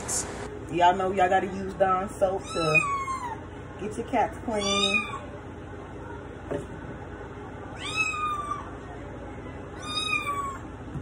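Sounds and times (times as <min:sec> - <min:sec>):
kitten meowing: 0:07.8 - 0:08.6, 0:09.8 - 0:10.6.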